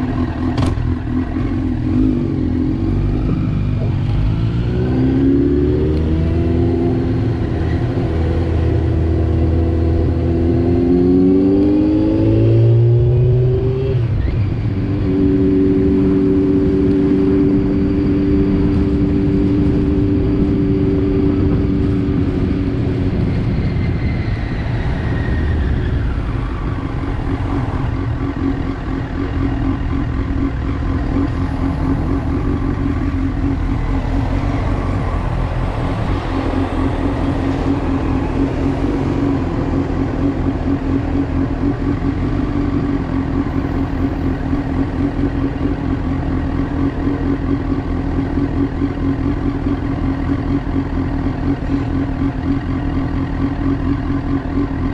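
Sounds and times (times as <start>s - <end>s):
motorcycle engine slowing: 0.0s - 54.9s
motorcycle engine idling: 26.6s - 38.2s, 39.5s - 54.9s.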